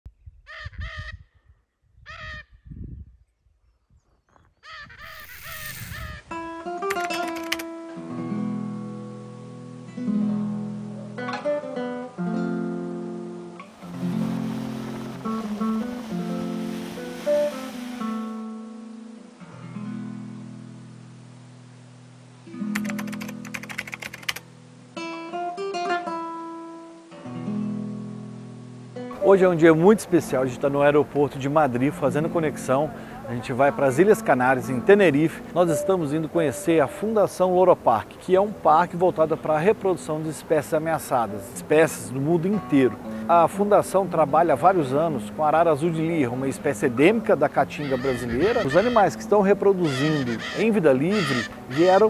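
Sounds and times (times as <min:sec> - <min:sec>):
macaws calling: 0:00.5 - 0:01.2, 0:02.1 - 0:02.5, 0:04.6 - 0:06.2, 0:47.7 - 0:52.0
acoustic guitar music: 0:05.7 - 0:52.0.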